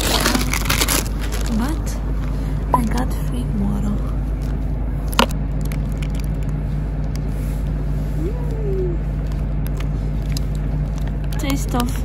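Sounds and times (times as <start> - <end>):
constant hum: 0.0 - 12.0
low mechanical rumble: 0.0 - 12.0.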